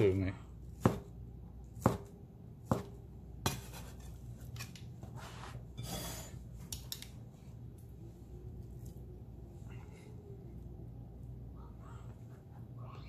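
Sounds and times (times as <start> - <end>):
cleaver chopping on wooden board: 0.8 - 1.1, 1.8 - 3.6.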